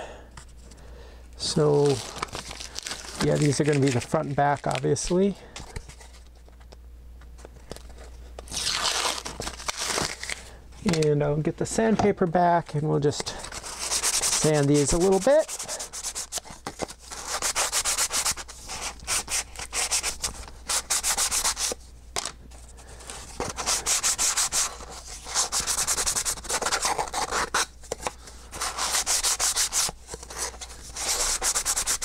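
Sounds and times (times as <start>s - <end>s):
hand sanding wood: 13.5s - 16.5s, 17.1s - 21.8s, 23.5s - 27.7s, 28.5s - 32.0s.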